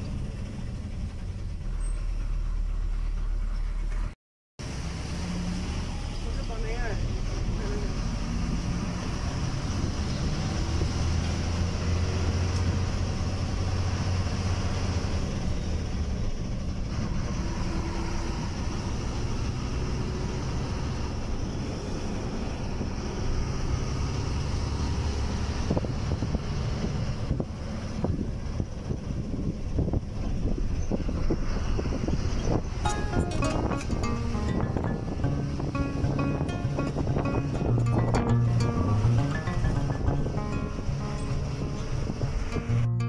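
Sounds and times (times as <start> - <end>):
bus engine drone: 0.0 - 43.0
wind noise: 25.4 - 42.9.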